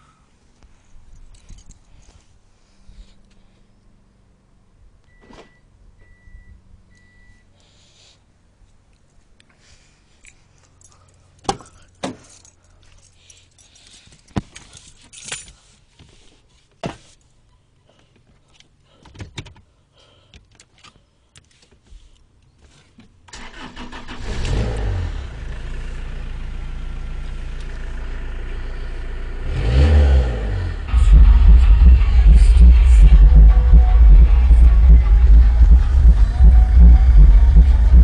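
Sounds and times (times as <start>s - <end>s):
diesel engine starting and idling: 23.3s - 38.0s.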